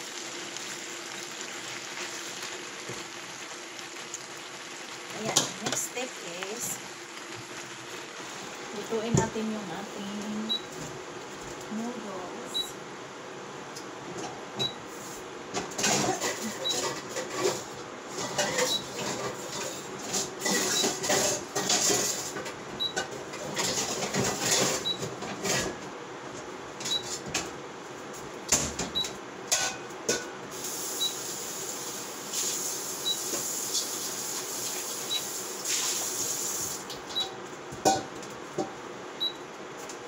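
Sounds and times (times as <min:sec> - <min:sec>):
kitchen rustling and clatter: 0:14.1 - 0:30.7
steady hiss: 0:30.5 - 0:36.9.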